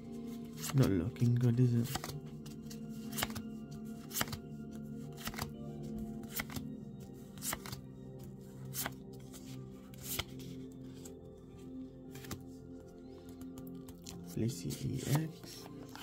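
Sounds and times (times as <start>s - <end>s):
soft background music: 0.0s - 16.0s
trading cards snapping: 1.8s - 2.2s, 3.1s - 3.4s, 4.1s - 4.4s, 5.2s - 5.5s, 6.2s - 6.6s, 7.4s - 7.8s.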